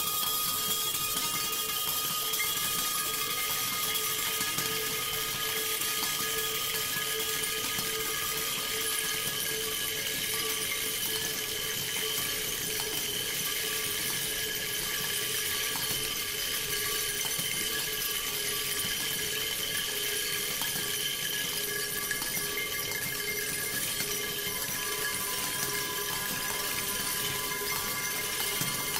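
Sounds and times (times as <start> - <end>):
metallic ringing tones: 0.0 - 28.9.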